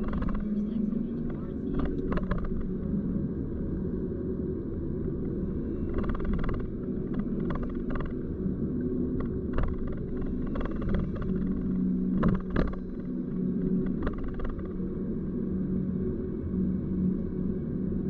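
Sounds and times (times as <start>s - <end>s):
faint hum: 0.0s - 18.0s.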